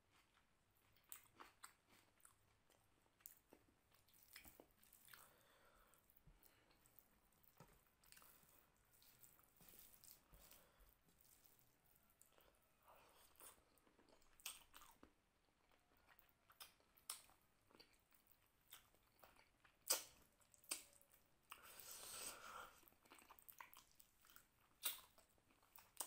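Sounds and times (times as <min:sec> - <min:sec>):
wet chewing: 0:00.2 - 0:15.1, 0:16.0 - 0:26.0
mouth clicks and smacks: 0:19.8 - 0:21.6, 0:23.0 - 0:25.2.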